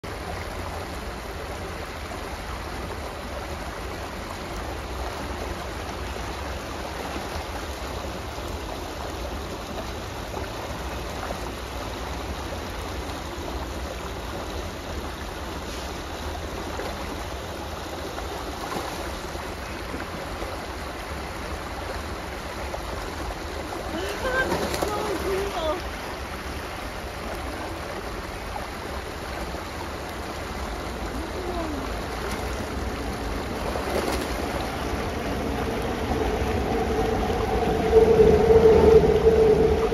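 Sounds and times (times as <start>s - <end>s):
creek water rushing over rocks: 0.0s - 39.9s
low rumble: 32.5s - 39.9s.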